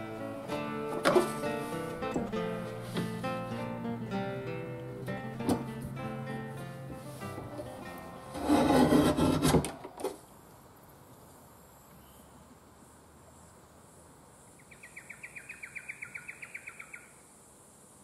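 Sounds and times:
board shear scraping crunch: 0.8 - 2.0, 7.0 - 10.2.

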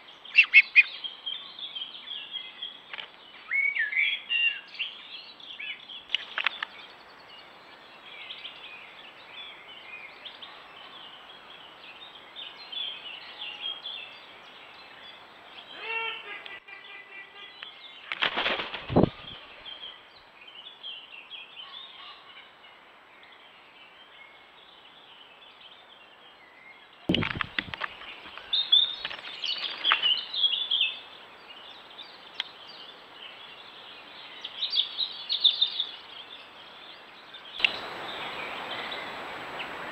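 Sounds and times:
birds singing and chirping: 0.0 - 22.6, 23.2 - 39.9
wings flapping: 18.1 - 19.6, 27.1 - 30.1.

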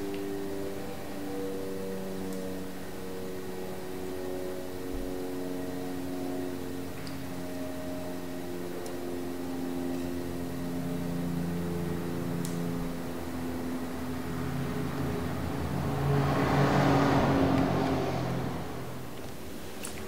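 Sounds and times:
background music sustained chords: 0.0 - 20.0
whooshing swell: 13.4 - 19.2.

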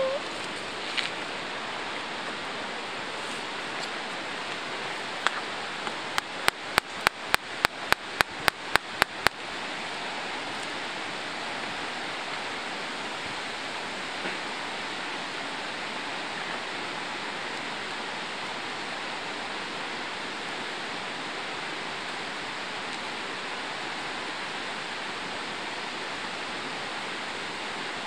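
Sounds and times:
stream water rushing: 0.0 - 28.0.

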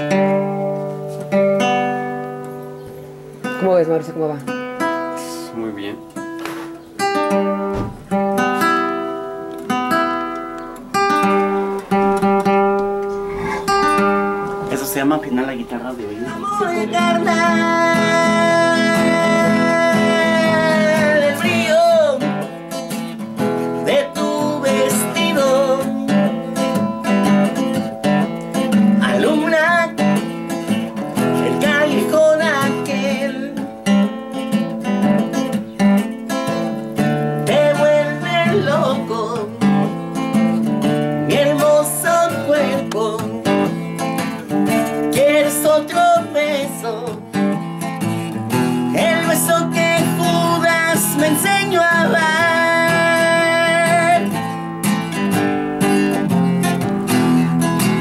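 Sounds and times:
nylon-string guitar strumming: 0.0 - 58.0
person singing: 15.9 - 22.6, 23.7 - 27.6, 28.8 - 34.0, 37.2 - 40.1, 40.9 - 47.6, 48.5 - 54.7.

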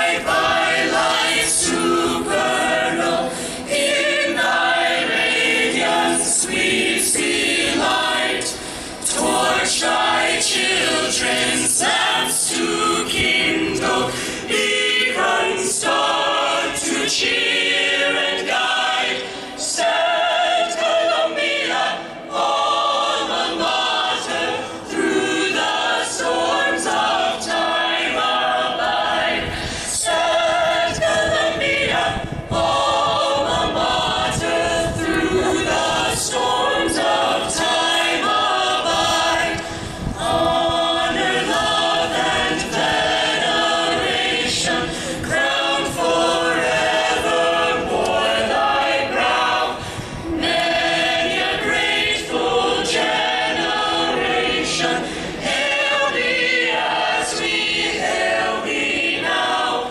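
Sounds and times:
choir singing over loudspeakers: 0.0 - 59.9
crowd noise: 0.0 - 59.9.

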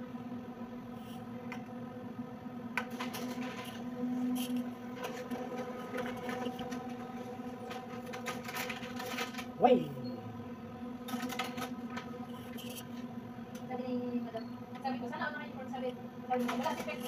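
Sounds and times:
copier humming: 0.0 - 17.0.

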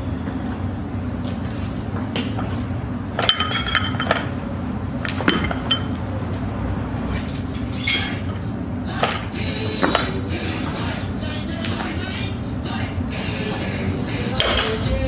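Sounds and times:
steady low hum: 0.0 - 15.0
barbell plates clinking: 3.2 - 4.3, 5.1 - 6.0.

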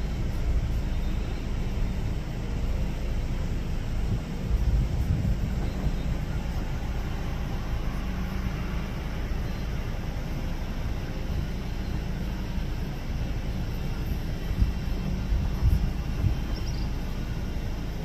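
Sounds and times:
distant jet engines idling: 0.0 - 18.0
wind on microphone: 3.8 - 7.1, 14.1 - 17.4.

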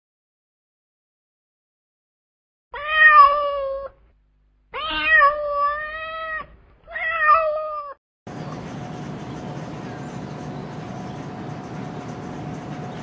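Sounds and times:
cat meowing: 2.8 - 4.0, 4.7 - 8.0.

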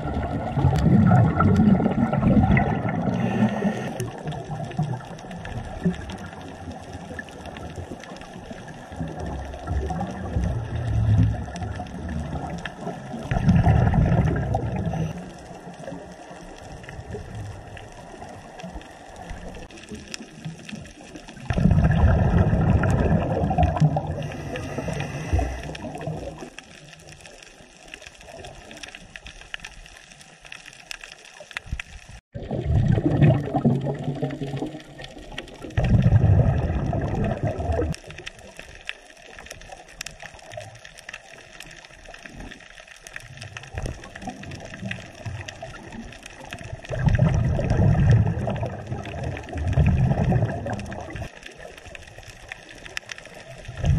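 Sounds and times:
underwater exhaled bubbles: 0.0 - 53.9
water hiss: 0.6 - 4.5, 22.0 - 26.6.

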